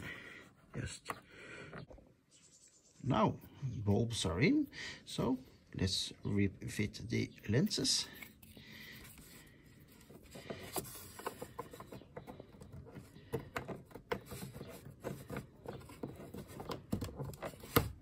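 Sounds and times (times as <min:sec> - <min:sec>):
plastic lens clicks and scrapes: 0:08.0 - 0:18.0.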